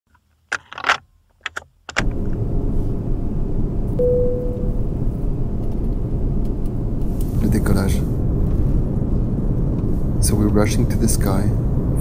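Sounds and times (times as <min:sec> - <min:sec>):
jet cabin engine rumble: 0:02.1 - 0:12.0
single clear tone: 0:04.0 - 0:04.9.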